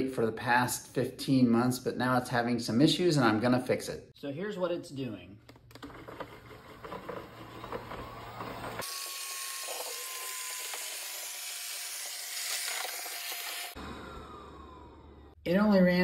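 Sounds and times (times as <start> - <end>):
robot vacuum running on wood floor: 5.8 - 11.7.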